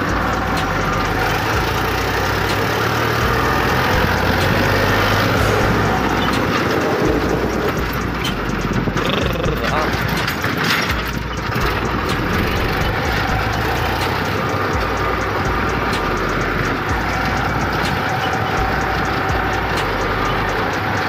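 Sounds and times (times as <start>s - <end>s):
tractor diesel engine rumble: 0.0s - 21.0s
clattering rattle: 9.8s - 21.0s.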